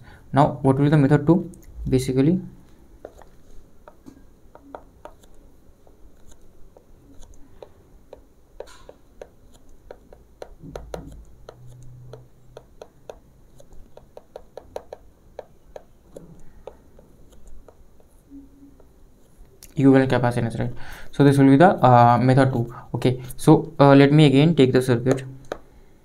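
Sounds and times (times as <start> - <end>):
stylus tapping on tablet screen: 3.0 - 19.0, 25.1 - 25.7.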